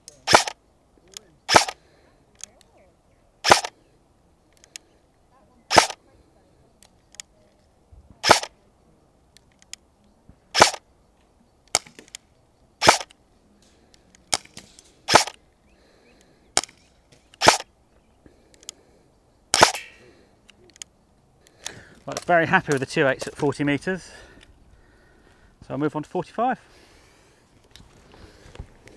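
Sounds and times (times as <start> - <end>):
airsoft rifle firing single shots: 0.2 - 0.6, 1.4 - 1.8, 3.4 - 3.8, 5.7 - 6.0, 8.2 - 8.5, 10.5 - 10.8, 12.8 - 13.1, 14.3 - 15.4, 16.6 - 17.7, 19.5 - 20.0
faint clicks: 4.5 - 4.9, 18.2 - 18.8, 20.4 - 23.3.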